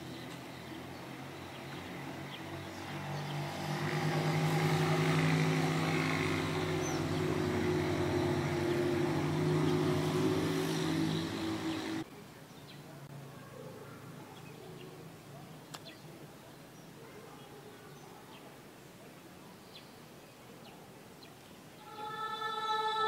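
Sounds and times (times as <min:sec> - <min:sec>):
steady engine drone: 0:00.0 - 0:12.1.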